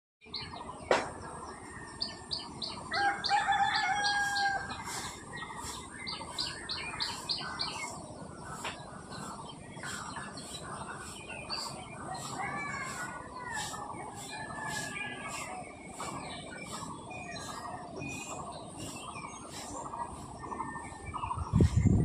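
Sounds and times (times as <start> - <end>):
birds chirping: 0.2 - 22.0
rooster crowing: 2.9 - 5.0.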